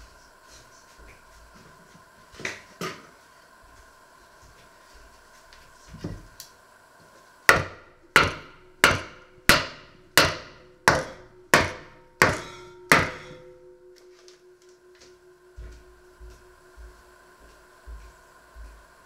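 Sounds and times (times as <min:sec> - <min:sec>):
hammer pounding wooden board: 0:07.5 - 0:13.5.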